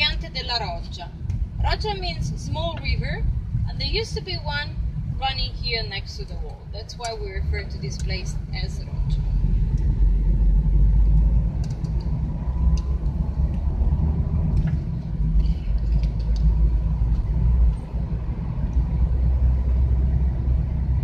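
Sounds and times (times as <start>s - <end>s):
engine and road rumble: 0.0s - 21.0s.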